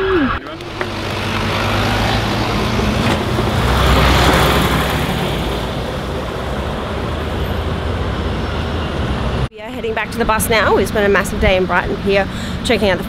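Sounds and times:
traffic rumble: 0:00.0 - 0:13.0
bus engine passing: 0:00.4 - 0:13.0.

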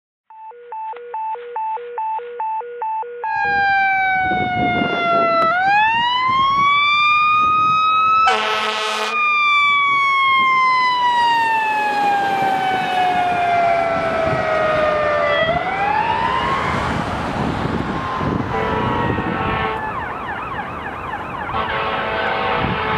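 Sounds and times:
fire engine siren wailing: 0:03.1 - 0:22.9
air horn blast: 0:08.2 - 0:09.2, 0:18.4 - 0:20.0, 0:21.5 - 0:22.9.

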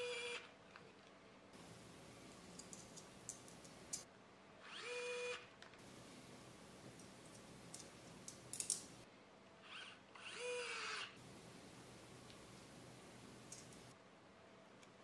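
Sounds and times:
sharp clicks: 0:01.6 - 0:04.0, 0:05.8 - 0:09.0, 0:11.3 - 0:13.9
electric screwdriver motor whirring: 0:09.7 - 0:11.1.

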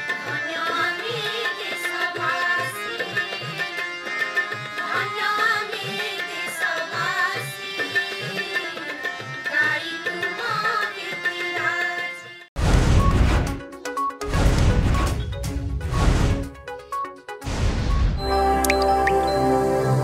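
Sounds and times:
harmonium: 0:00.0 - 0:12.5
women singing in chorus: 0:00.3 - 0:03.8, 0:04.8 - 0:12.0.

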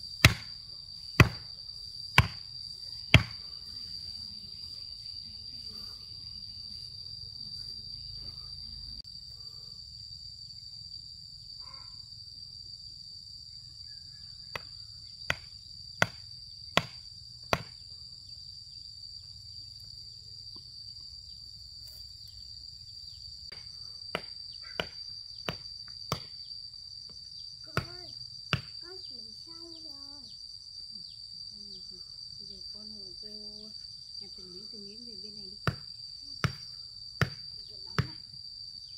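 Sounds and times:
insects droning: 0:00.0 - 0:38.9
hand tool striking stone: 0:00.2 - 0:00.6, 0:01.2 - 0:01.5, 0:02.2 - 0:02.4, 0:03.1 - 0:03.4, 0:23.5 - 0:26.4.

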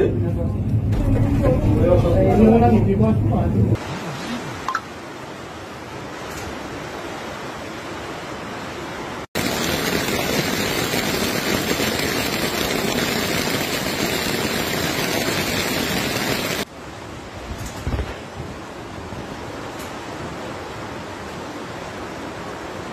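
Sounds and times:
floodwater rushing: 0:03.8 - 0:17.3.

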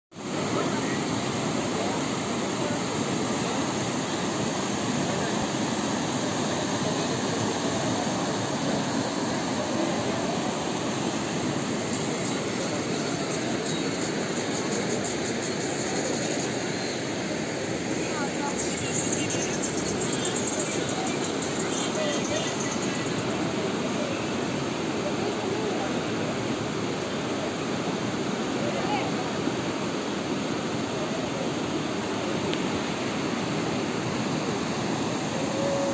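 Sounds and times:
river rushing through rapids: 0:00.2 - 0:35.9.

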